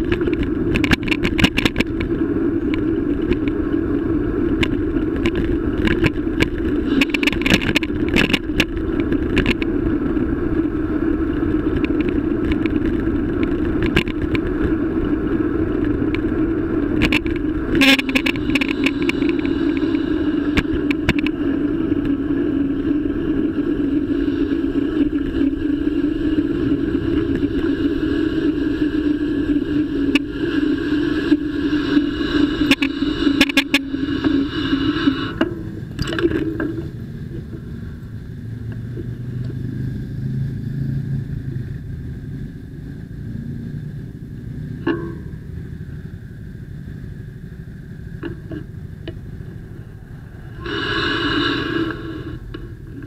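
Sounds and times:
road and wind noise: 0.0s - 53.0s.

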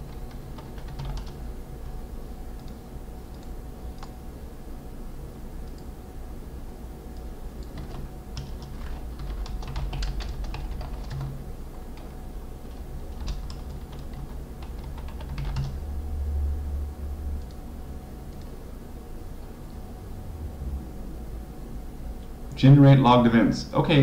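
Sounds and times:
computer keyboard typing: 0.0s - 1.4s, 2.5s - 4.2s, 7.6s - 15.8s
low steady hum: 0.0s - 24.0s.

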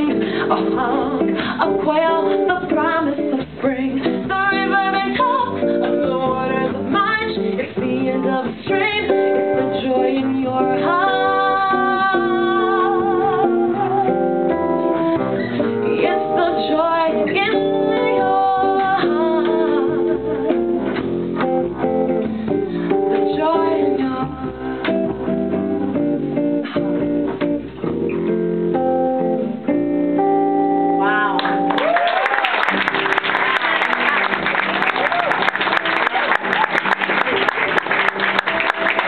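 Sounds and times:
woman singing with vibrato: 0.0s - 15.0s, 15.7s - 20.9s, 23.1s - 24.8s
jazz guitar: 0.0s - 39.0s.

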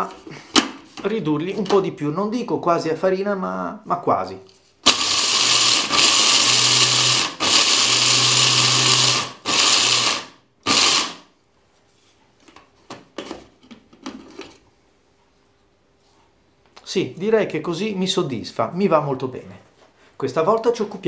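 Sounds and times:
electric grinder grinding: 4.8s - 11.3s.

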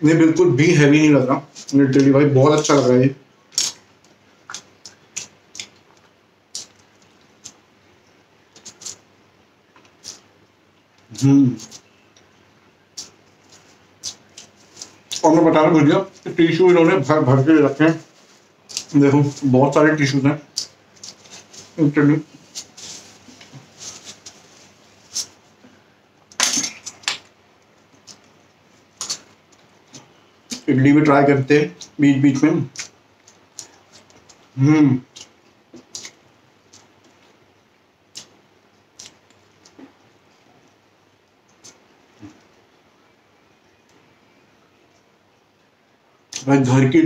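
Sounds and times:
sharp eating clicks: 3.5s - 3.8s, 4.5s - 7.6s, 13.0s - 15.3s, 20.4s - 21.4s, 32.7s - 37.0s, 38.1s - 38.4s.

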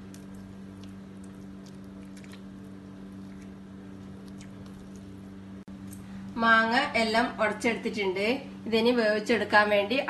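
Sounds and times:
hands squishing mango pulp: 0.0s - 5.4s.

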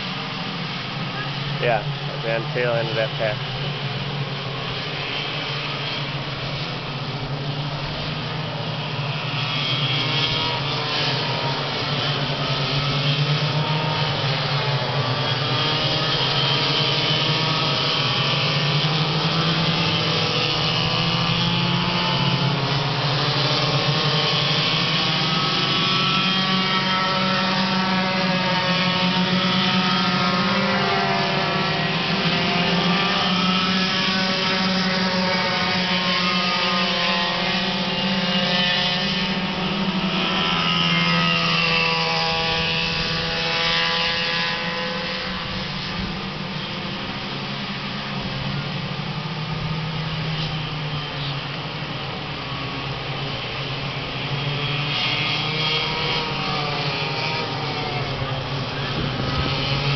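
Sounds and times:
go-kart engines racing: 0.0s - 59.9s.

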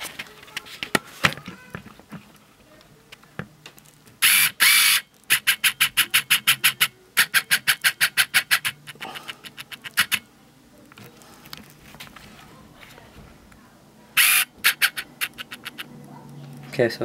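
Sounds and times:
valve grinding against seat: 4.2s - 10.2s, 14.2s - 15.9s.

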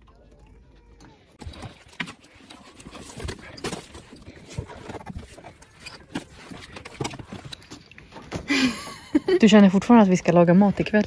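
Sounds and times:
camping gear being handled: 1.4s - 8.6s.

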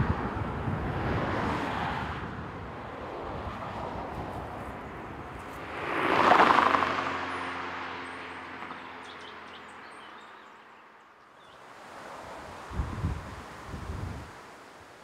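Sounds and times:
wind buffeting microphone: 0.0s - 6.8s, 11.9s - 14.6s
vehicle driving past: 3.2s - 10.2s.

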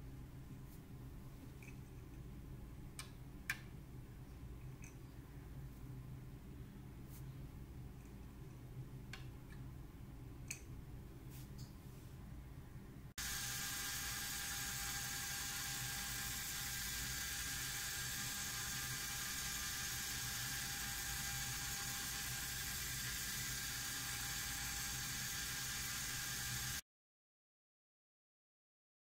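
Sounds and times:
small electric motor whirring: 13.2s - 26.8s.

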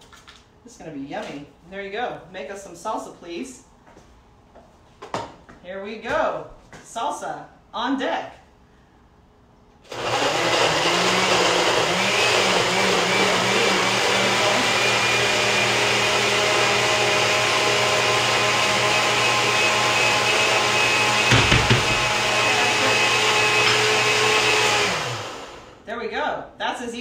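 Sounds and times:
blender running: 9.9s - 25.8s.

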